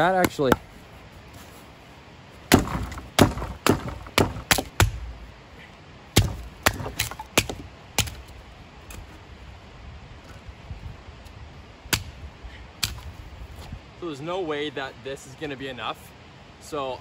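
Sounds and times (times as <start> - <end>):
axe chopping wood: 0.0 - 0.7, 2.5 - 5.2, 6.2 - 8.3, 11.9 - 12.2, 12.8 - 13.1.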